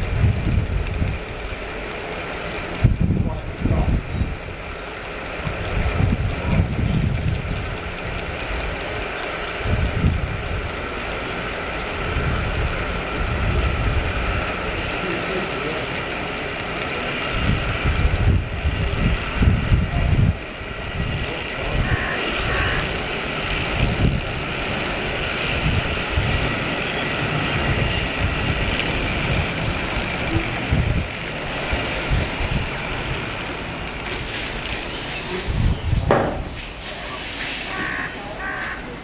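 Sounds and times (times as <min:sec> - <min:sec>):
wind buffeting microphone: 0:00.0 - 0:15.2, 0:16.2 - 0:36.8
steady rushing noise: 0:00.0 - 0:39.0
bright hissing rush: 0:31.3 - 0:39.0.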